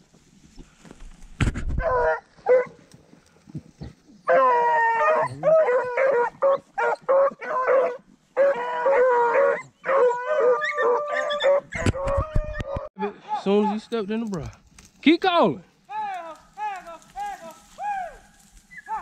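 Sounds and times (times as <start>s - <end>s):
hounds baying: 1.8s - 2.8s, 4.2s - 13.9s, 17.2s - 19.0s.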